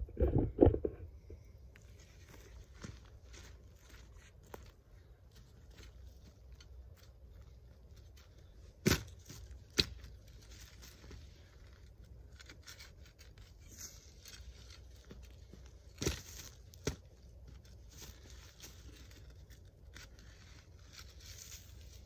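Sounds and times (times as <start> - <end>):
dirt and dry leaves crunching: 1.9 - 22.0.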